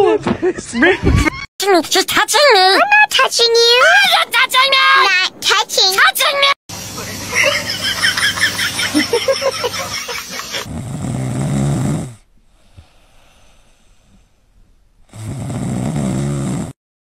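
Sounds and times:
dog snoring: 10.6s - 14.3s, 15.0s - 16.8s.

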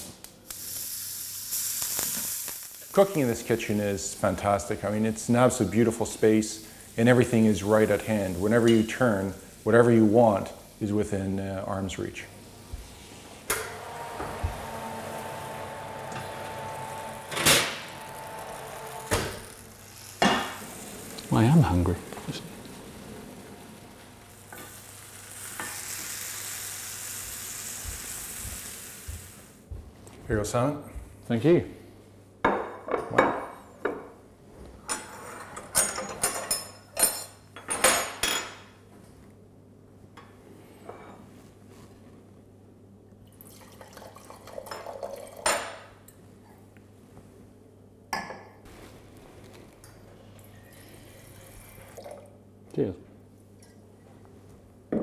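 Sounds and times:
oven fan humming: 2.9s - 32.0s.

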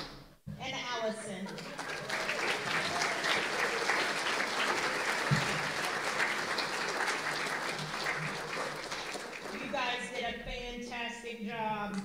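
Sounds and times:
audience applauding: 1.5s - 10.1s.

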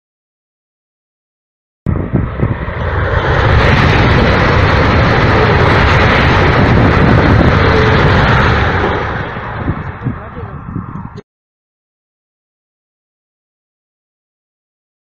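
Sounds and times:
high-speed train rushing past: 1.9s - 11.2s.

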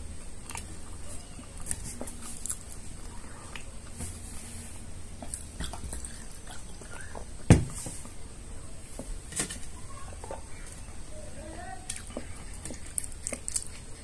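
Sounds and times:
swallowing and mouth sounds: 5.2s - 7.3s.

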